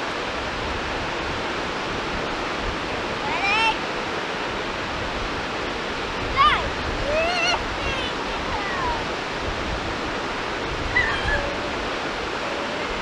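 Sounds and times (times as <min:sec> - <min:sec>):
small waves breaking on shore: 0:00.0 - 0:13.0
brief high calls: 0:10.9 - 0:11.8.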